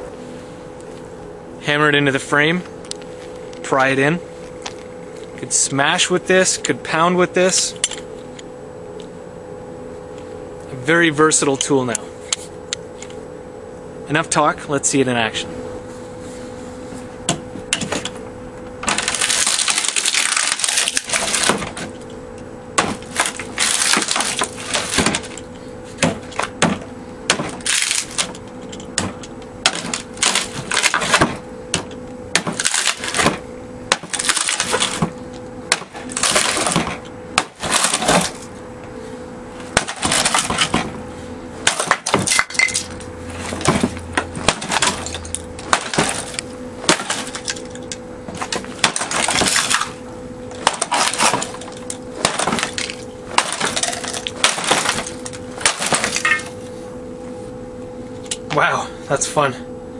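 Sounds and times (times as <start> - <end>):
wood cracking and splintering: 18.8 - 22.0, 22.8 - 38.5, 39.8 - 40.9, 41.6 - 50.0, 50.6 - 56.5.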